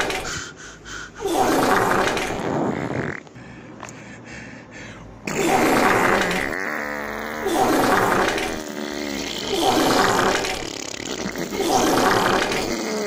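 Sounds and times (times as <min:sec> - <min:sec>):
comic fart sounds: 0:01.3 - 0:03.3, 0:05.3 - 0:13.0.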